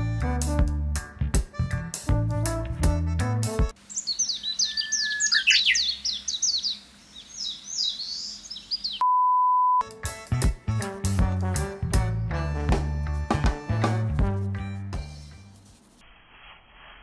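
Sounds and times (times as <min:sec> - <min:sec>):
bouncy music with beat: 0:00.0 - 0:03.7, 0:09.8 - 0:15.4
songbirds chirping: 0:03.7 - 0:09.1
steady beep: 0:09.0 - 0:09.8.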